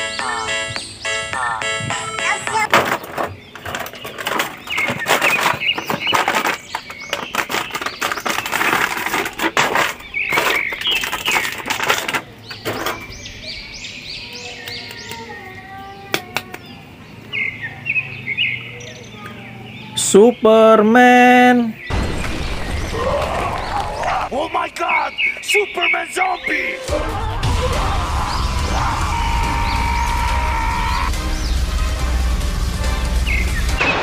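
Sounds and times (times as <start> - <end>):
birds chirping: 0.0 - 34.0
plastic bag crinkling: 3.5 - 12.6.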